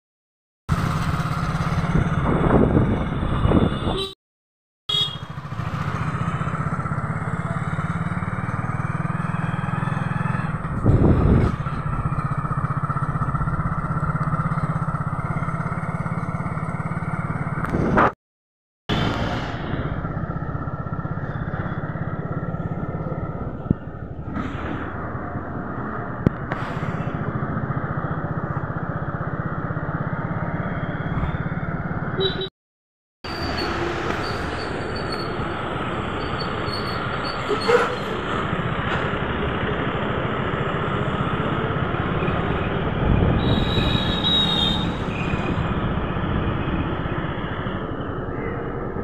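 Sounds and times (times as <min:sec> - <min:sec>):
road noise: 0:00.7 - 0:04.2, 0:04.9 - 0:18.2, 0:18.9 - 0:32.5, 0:33.2 - 0:49.0
wind noise: 0:01.8 - 0:04.1, 0:10.6 - 0:12.1, 0:42.1 - 0:47.4
small vehicle engine running: 0:05.2 - 0:18.0.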